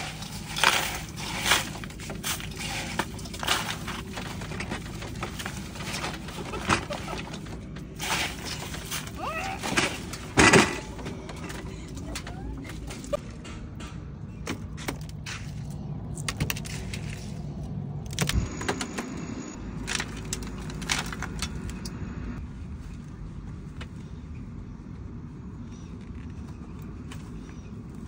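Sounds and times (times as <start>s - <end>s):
metal tray with ice rattling: 0.0s - 13.2s.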